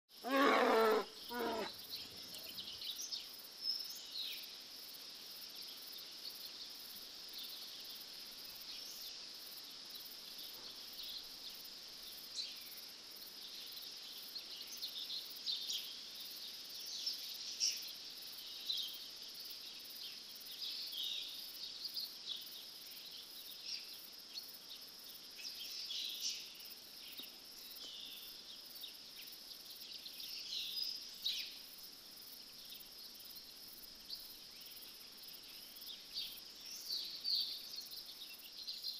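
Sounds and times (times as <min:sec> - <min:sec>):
insect trill: 0:00.1 - 0:38.9
bird chirps and calls: 0:00.2 - 0:02.8.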